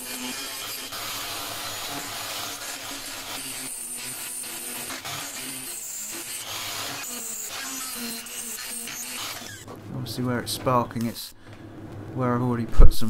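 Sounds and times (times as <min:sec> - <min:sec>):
die grinder grinding metal: 0:00.0 - 0:09.8.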